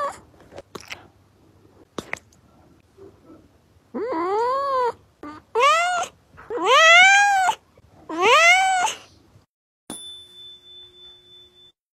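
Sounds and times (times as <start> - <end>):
cat meowing: 4.0 - 9.0.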